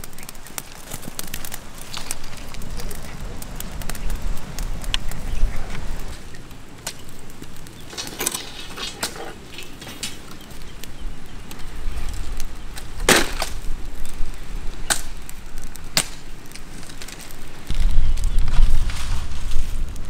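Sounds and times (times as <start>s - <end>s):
wood cracking and snapping: 0.0s - 20.0s.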